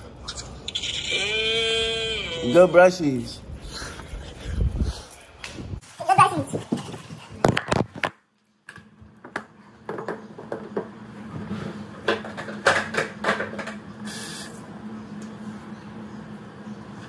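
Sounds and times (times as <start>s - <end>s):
objects clattering on a counter: 8.7s - 11.0s.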